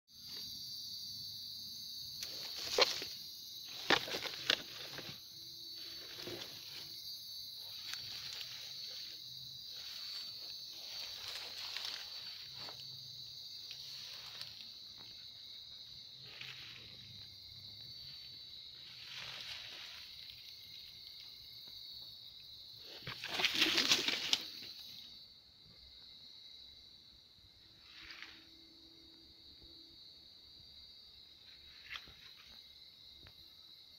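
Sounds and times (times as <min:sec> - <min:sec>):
night insects chorus: 0:00.1 - 0:33.9
leaves rustling: 0:02.2 - 0:17.3, 0:17.9 - 0:21.2, 0:22.8 - 0:24.8.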